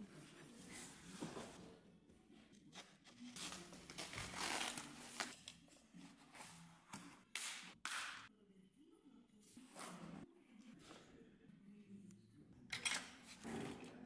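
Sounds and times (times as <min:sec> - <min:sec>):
bubble wrap crinkling and tearing: 0:03.2 - 0:05.4.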